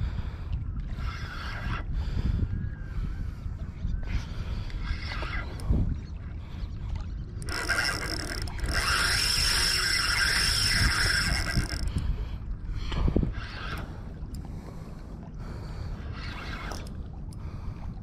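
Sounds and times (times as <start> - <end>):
fishing reel gears whirring: 4.0 - 5.8, 7.1 - 14.4, 16.0 - 17.1.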